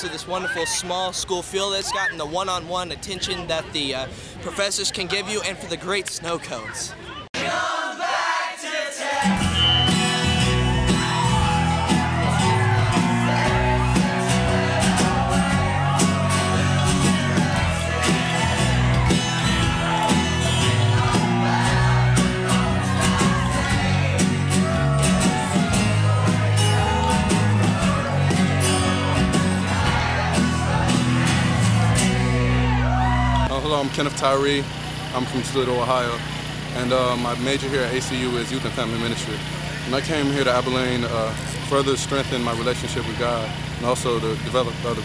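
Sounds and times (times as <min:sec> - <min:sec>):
bass and drum beat: 0:09.4 - 0:33.5.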